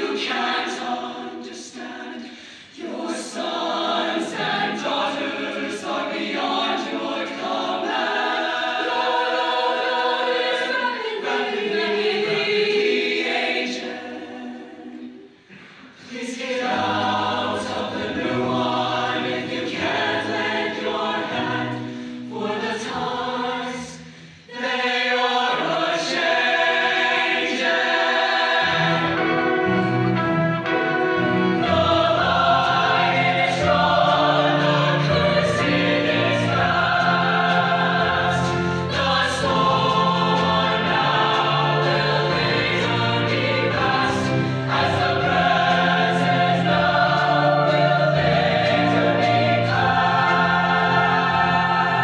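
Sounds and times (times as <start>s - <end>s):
choir singing: 0.0s - 52.0s
live band playing: 28.9s - 32.1s.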